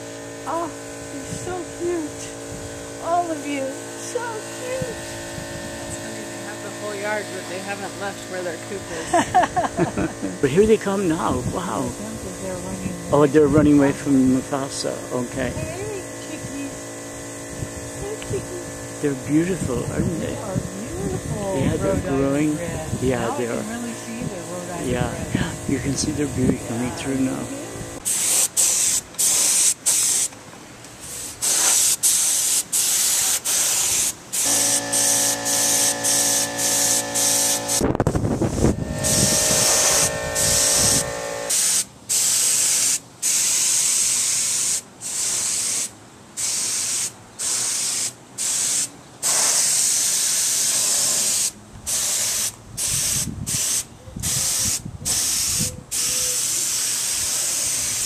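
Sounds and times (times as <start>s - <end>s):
steady hum: 0.0s - 31.4s, 33.6s - 42.1s
air spray gun hissing: 25.8s - 30.4s, 31.0s - 58.0s.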